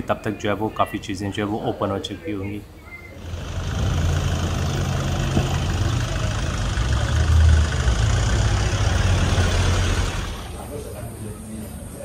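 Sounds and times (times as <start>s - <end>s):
traffic on cobbled street: 2.6s - 12.0s
vehicle engine rumbling: 3.1s - 11.1s.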